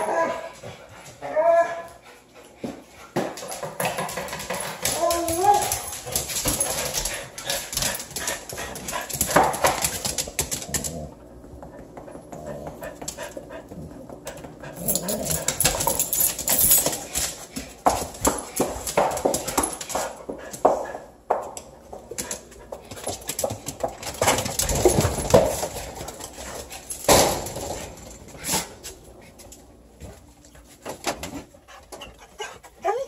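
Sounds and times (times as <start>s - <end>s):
claws clicking on tile floor: 3.4s - 11.1s, 14.3s - 20.8s.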